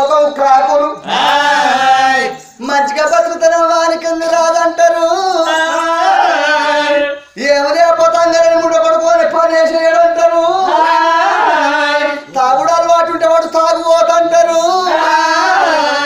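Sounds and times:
men singing folk song: 0.0s - 3.0s, 4.8s - 8.4s, 9.7s - 16.0s.

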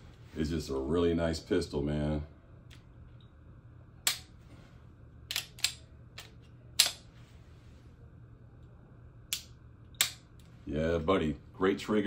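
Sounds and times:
pistol metallic clicks: 5.3s - 7.0s, 9.3s - 10.2s.

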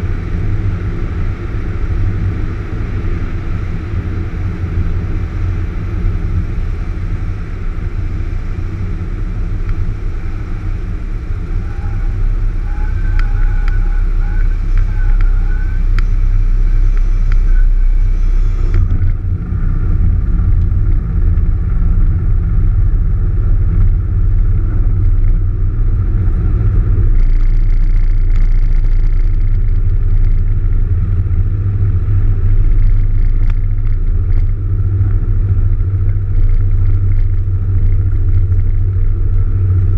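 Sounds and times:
aircraft engine rumble in cabin: 0.0s - 39.9s
thin wavering tone: 11.5s - 18.8s.

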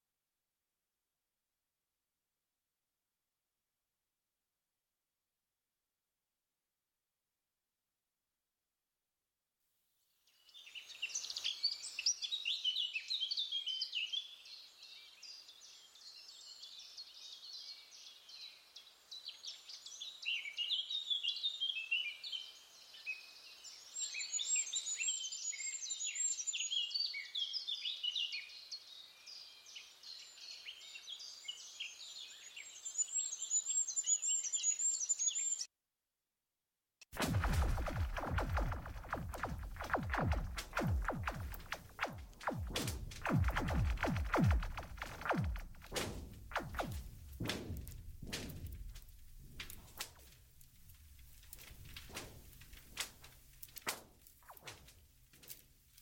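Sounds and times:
songbirds singing: 19.3s - 35.7s.

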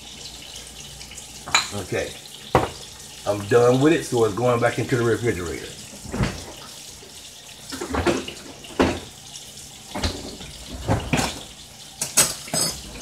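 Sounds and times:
bottle knocks and bumps: 2.5s - 2.8s.

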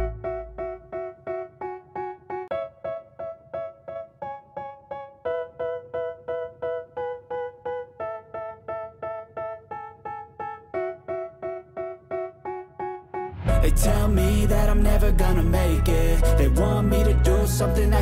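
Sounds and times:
keyboard chords in rap beat: 0.0s - 18.0s.

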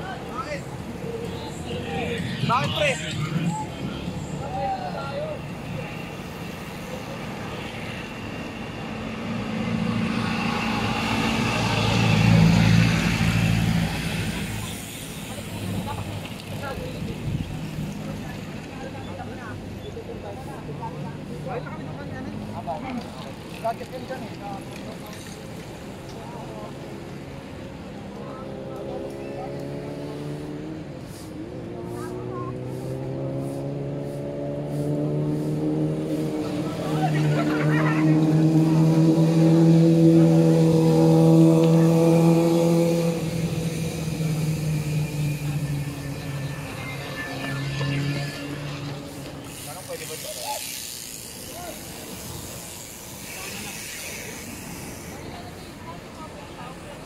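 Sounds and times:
diesel engine passing by: 0.0s - 19.4s, 28.4s - 57.0s
road noise: 0.0s - 57.0s.

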